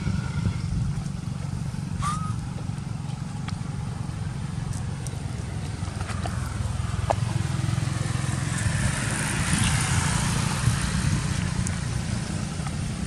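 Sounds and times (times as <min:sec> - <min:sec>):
low outdoor rumble: 0:00.0 - 0:13.0
faint squeak: 0:02.0 - 0:02.4.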